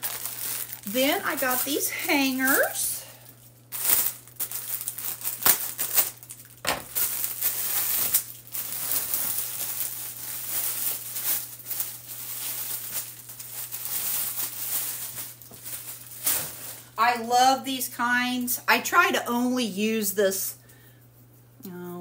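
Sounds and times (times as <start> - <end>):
plastic packaging crinkling: 0.0 - 17.3.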